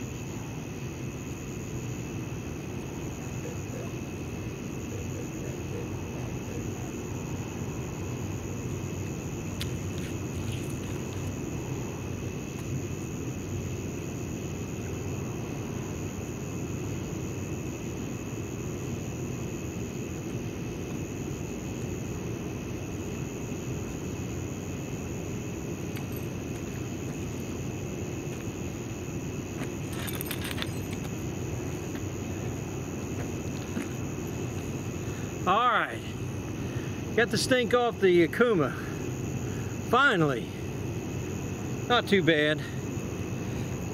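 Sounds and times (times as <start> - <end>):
light clicks and rattles: 29.6 - 31.2.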